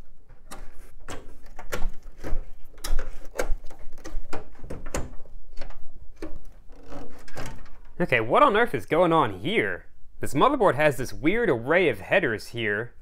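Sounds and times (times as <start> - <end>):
cables unplugging clicks and knocks: 0.3 - 6.6.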